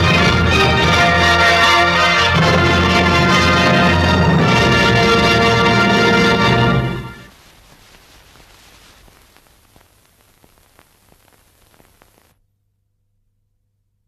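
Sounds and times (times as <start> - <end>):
old film soundtrack hiss and crackle: 0.0 - 12.4
scattered clicks: 7.3 - 12.4.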